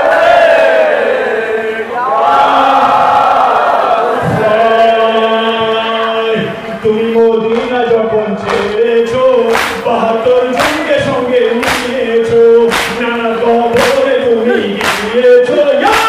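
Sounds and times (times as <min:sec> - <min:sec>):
crowd of men singing: 0:00.0 - 0:16.0
man singing lament into microphone: 0:04.2 - 0:16.0
chest-beating slaps: 0:09.5 - 0:09.9, 0:10.6 - 0:10.9, 0:11.6 - 0:12.0, 0:12.7 - 0:13.1, 0:14.8 - 0:15.2.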